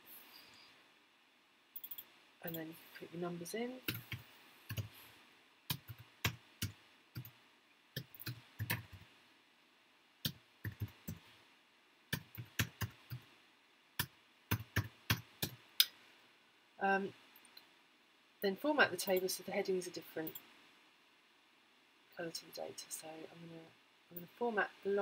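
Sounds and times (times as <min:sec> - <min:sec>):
typing on a computer keyboard: 0:01.8 - 0:02.1, 0:03.8 - 0:04.9, 0:05.7 - 0:07.4, 0:08.0 - 0:09.0, 0:10.2 - 0:11.2, 0:12.1 - 0:13.2, 0:14.0 - 0:15.6.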